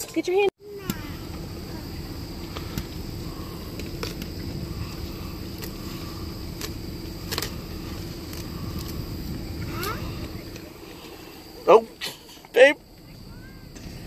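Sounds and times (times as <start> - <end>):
car engine idling: 0.6 - 14.0
leaves crackling: 0.9 - 11.6.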